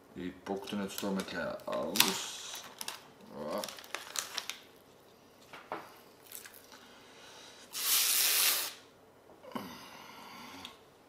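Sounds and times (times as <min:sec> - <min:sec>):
plastic crinkles: 0:00.4 - 0:06.8
plastic film ripping: 0:00.5 - 0:04.8, 0:06.2 - 0:06.7.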